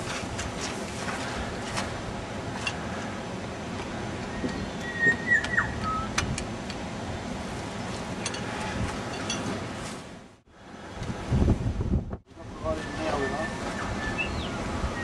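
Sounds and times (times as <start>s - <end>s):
wind rumble on microphone: 10.6s - 15.0s.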